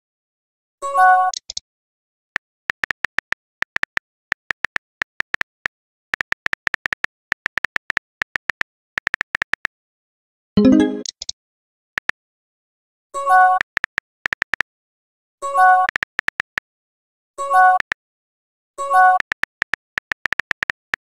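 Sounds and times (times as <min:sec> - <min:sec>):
touchscreen keyboard clicks: 0:02.7 - 0:05.5, 0:06.2 - 0:09.7, 0:13.6 - 0:14.6, 0:15.8 - 0:16.6, 0:19.1 - 0:21.0
message sent tone: 0:10.6 - 0:11.1.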